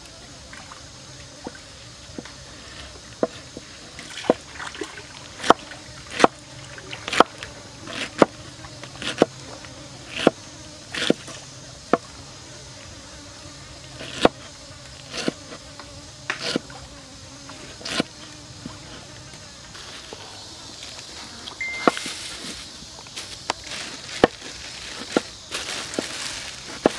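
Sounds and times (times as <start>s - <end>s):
knife chopping on wooden board: 5.4s - 6.4s, 7.1s - 8.3s, 9.0s - 9.3s, 10.1s - 10.4s, 11.0s - 11.2s, 14.0s - 14.4s, 15.1s - 15.4s, 16.3s - 16.6s, 17.8s - 18.1s.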